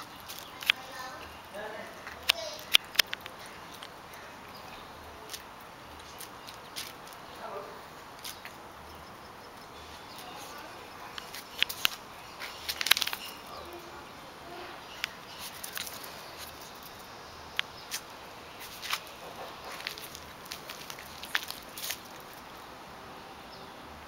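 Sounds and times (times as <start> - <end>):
claws clicking on concrete: 0.0 - 1.0, 2.0 - 4.2, 5.3 - 7.3, 8.2 - 8.6, 11.1 - 13.7, 14.9 - 22.4.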